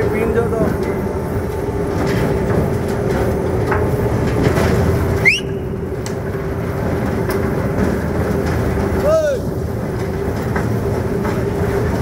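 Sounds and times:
hydraulic crane machinery hum: 0:00.0 - 0:12.0
short rising whistle: 0:05.2 - 0:05.7.

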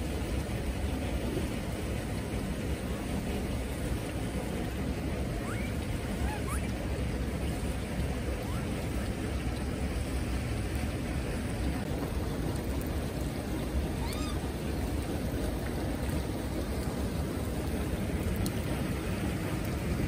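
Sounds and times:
monkey coo call: 0:05.4 - 0:06.8, 0:14.0 - 0:14.4.

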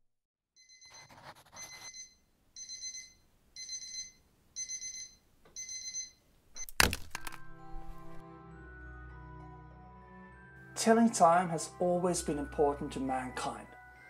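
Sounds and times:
alarm clock beeping: 0:00.6 - 0:06.7
chalk scratching: 0:00.8 - 0:02.1
music: 0:07.3 - 0:14.0.

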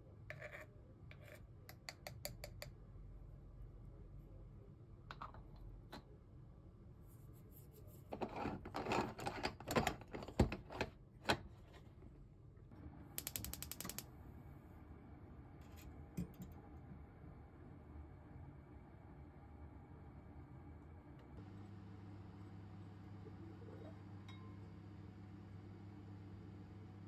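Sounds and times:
metal threads scraping and clicking: 0:13.2 - 0:14.0
gas stove igniter ticking: 0:13.2 - 0:14.1.

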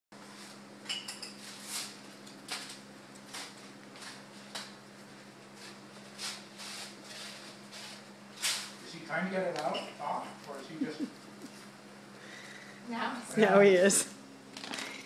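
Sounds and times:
steady low hum: 0:00.2 - 0:15.0
plastic bag crinkling: 0:14.6 - 0:15.0.

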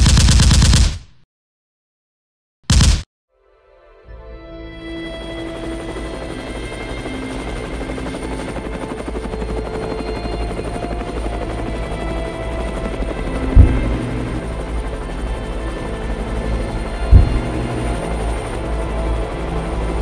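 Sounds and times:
sustained music tones: 0:03.4 - 0:20.0
helicopter-like rotor rumble: 0:04.7 - 0:20.0
heavy boom: 0:13.5 - 0:14.4, 0:17.1 - 0:18.0.

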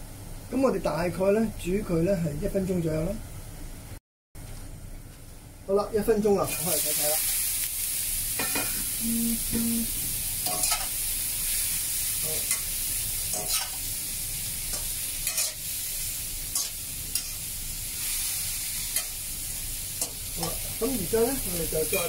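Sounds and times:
vegetables sizzling in oil: 0:06.4 - 0:22.0.

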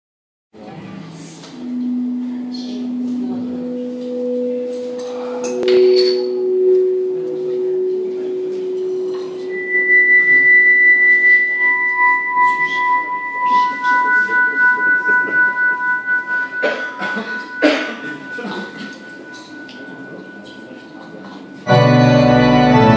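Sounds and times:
amplified guitar held notes: 0:01.5 - 0:21.0, 0:21.6 - 0:22.9.

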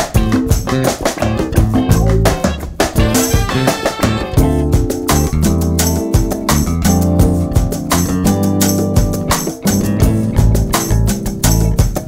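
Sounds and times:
upbeat music with guitar and beat: 0:00.0 - 0:12.0.

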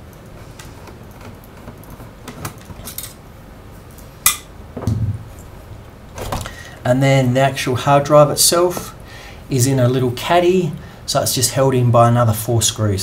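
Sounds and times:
low thump: 0:04.8 - 0:05.3.

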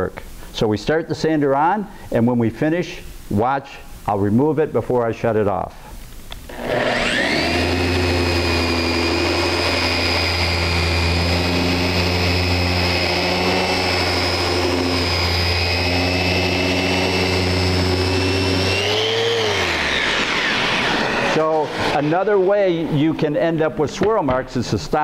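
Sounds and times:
sanding wood: 0:06.5 - 0:22.5
sander motor whine: 0:06.5 - 0:22.8.

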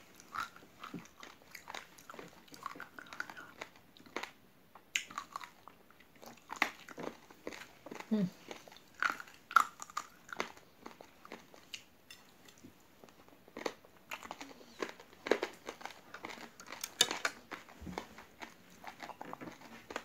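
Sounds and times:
crunchy biting and chewing: 0:13.6 - 0:20.0.

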